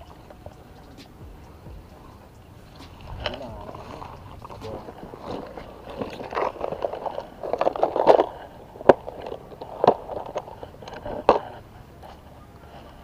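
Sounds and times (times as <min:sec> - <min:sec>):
plastic box rattling: 0:03.1 - 0:11.5.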